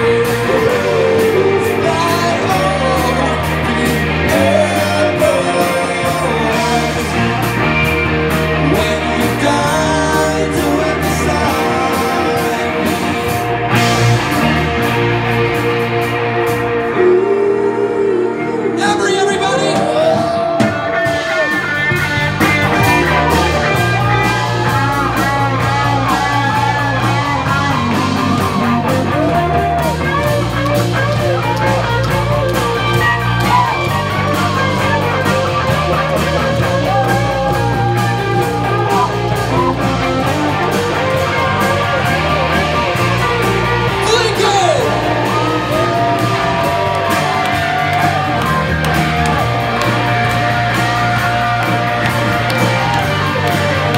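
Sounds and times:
drum kit with cymbals: 0:00.0 - 0:17.0, 0:18.8 - 0:53.9
bass line: 0:00.0 - 0:53.9
electric guitars: 0:00.0 - 0:53.9.

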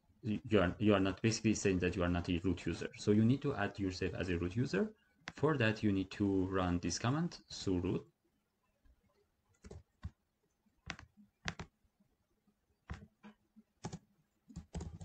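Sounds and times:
mouse and keyboard clicks: 0:10.8 - 0:11.7, 0:12.8 - 0:15.0.

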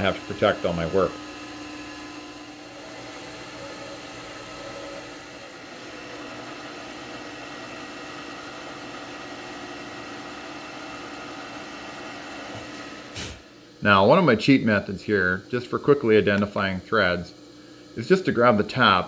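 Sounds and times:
drill bit cutting metal: 0:00.0 - 0:11.6
milling machine spindle humming: 0:00.0 - 0:19.0.

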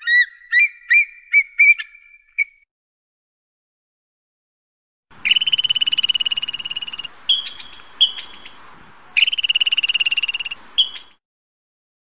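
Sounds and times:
squirrel chattering trills: 0:05.2 - 0:08.6, 0:09.2 - 0:11.2
squirrel short chirps: 0:09.2 - 0:11.2.

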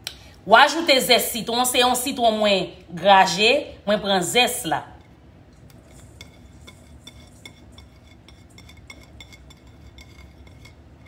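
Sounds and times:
zest scraped off ceramic plate: 0:05.7 - 0:11.0.

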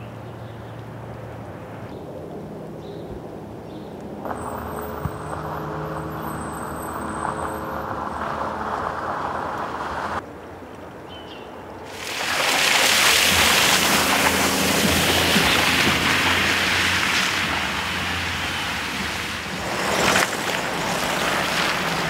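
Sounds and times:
vehicle engine running: 0:04.2 - 0:10.2, 0:13.2 - 0:22.0
tyres hissing through wet slush: 0:11.9 - 0:22.0.

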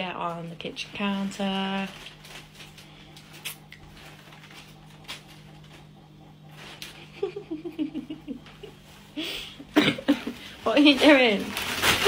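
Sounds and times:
plastic bag crinkling: 0:00.0 - 0:05.9, 0:10.1 - 0:12.0
low steady hum: 0:00.0 - 0:12.0.

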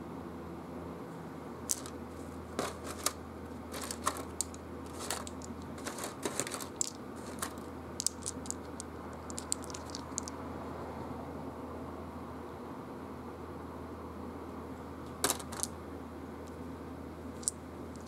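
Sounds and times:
game pieces clicking: 0:01.7 - 0:02.0, 0:03.8 - 0:10.4.

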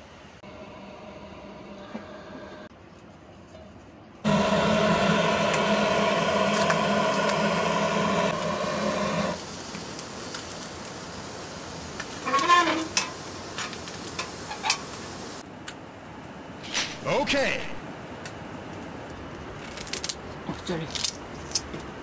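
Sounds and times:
butane torch roaring: 0:04.2 - 0:15.4.

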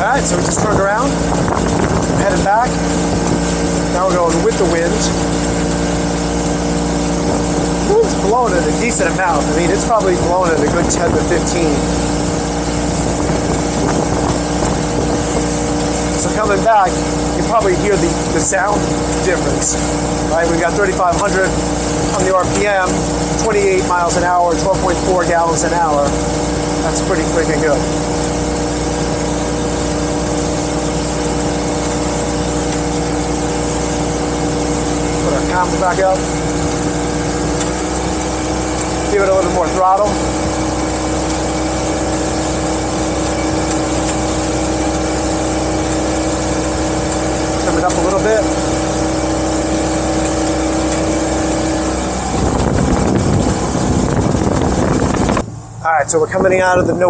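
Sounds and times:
loud rushing wind: 0:00.0 - 0:04.0, 0:10.5 - 0:16.2, 0:51.4 - 0:57.0
boat engine running: 0:00.0 - 0:57.0
water noise: 0:00.0 - 0:57.0
wind: 0:00.0 - 0:57.0.

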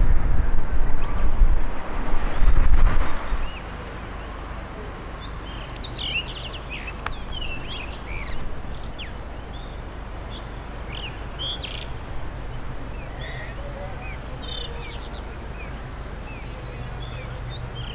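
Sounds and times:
wind rumble on microphone: 0:00.0 - 0:17.9
bird singing whistled notes: 0:05.2 - 0:15.7.

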